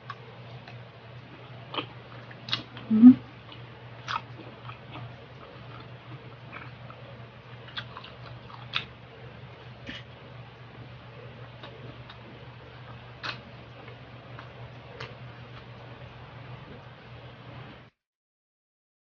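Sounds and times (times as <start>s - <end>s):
person chewing crunchy food: 0.0s - 10.2s, 11.2s - 16.0s.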